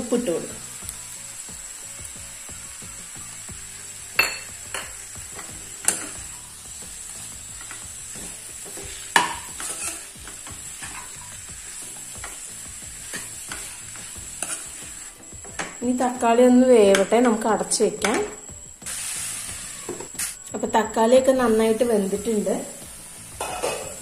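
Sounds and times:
masala sizzling in a pan: 0:00.0 - 0:24.0
spatula scraping a pan: 0:07.6 - 0:15.1, 0:23.3 - 0:24.0.

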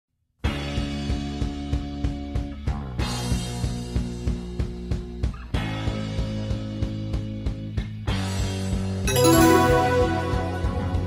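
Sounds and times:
music with held notes and beat: 0:09.1 - 0:11.0.

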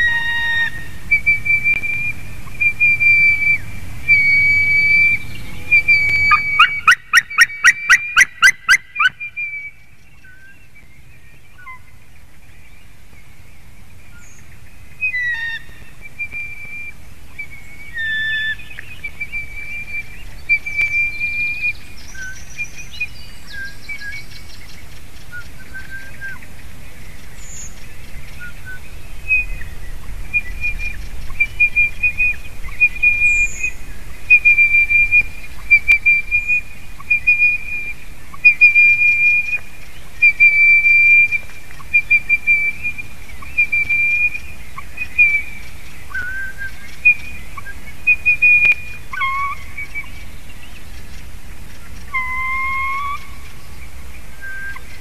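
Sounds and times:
eagle yelping calls: 0:00.0 - 0:09.8, 0:15.0 - 0:23.1, 0:28.4 - 0:50.1, 0:52.0 - 0:53.4
small birds chirping: 0:00.0 - 0:55.0.

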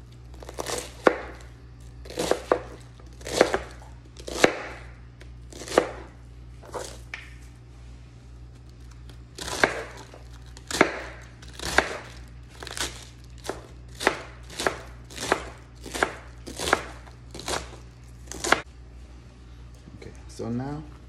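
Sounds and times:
knife slicing cabbage on board: 0:00.3 - 0:04.9, 0:05.5 - 0:07.1, 0:09.3 - 0:18.7.

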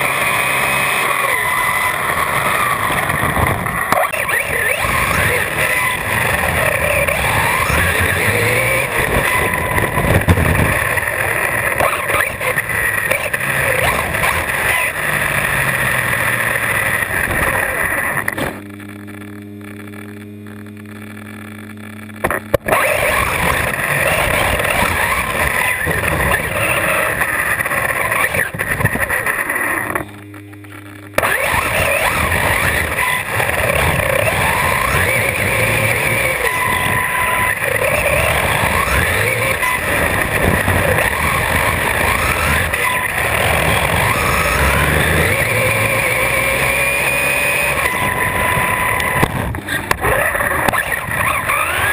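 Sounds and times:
wind and tyre noise: 0:00.0 - 0:18.7, 0:22.3 - 0:30.0, 0:31.2 - 0:51.9
electric motor whine: 0:00.0 - 0:51.9
low steady hum: 0:12.6 - 0:51.1.

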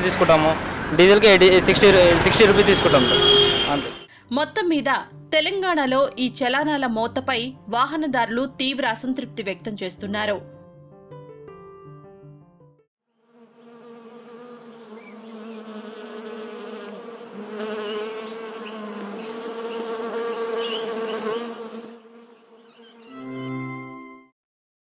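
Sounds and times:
bee buzzing: 0:13.1 - 0:23.1.

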